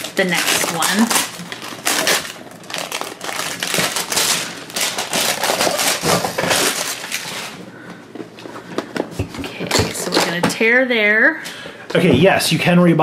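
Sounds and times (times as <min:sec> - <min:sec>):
plastic shrink wrap crinkling: 0:00.0 - 0:07.7.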